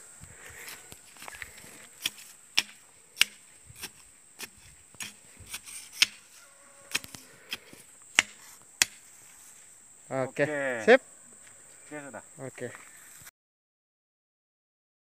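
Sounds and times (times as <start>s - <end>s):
bamboo pole knocking into ground: 2.0s - 6.2s, 8.2s - 9.0s.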